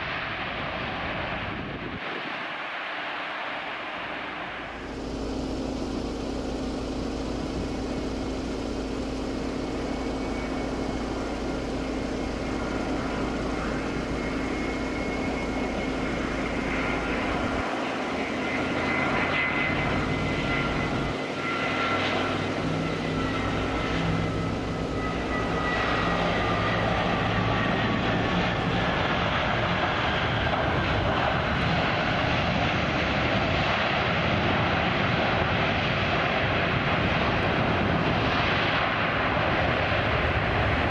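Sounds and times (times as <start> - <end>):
reverse thrust roar: 0.0 - 32.5
jet airliner landing: 0.0 - 40.9.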